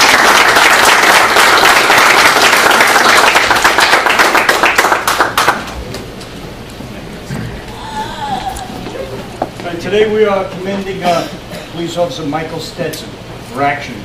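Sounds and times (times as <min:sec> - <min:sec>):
crowd applauding: 0:00.0 - 0:06.0.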